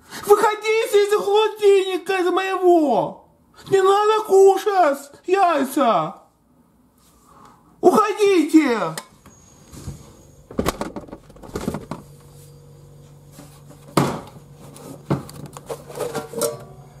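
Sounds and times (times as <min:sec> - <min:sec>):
low steady hum: 0:05.9 - 0:17.0
items clattering in refrigerator: 0:10.5 - 0:12.2, 0:13.3 - 0:17.0.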